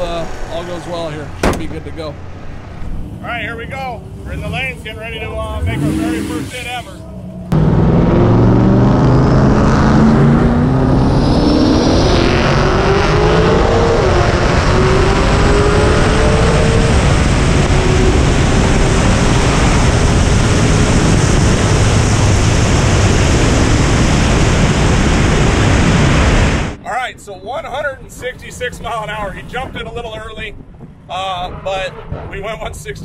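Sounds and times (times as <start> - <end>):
engine at full throttle: 0.0 - 26.8
wind rushing on camera: 8.2 - 33.0.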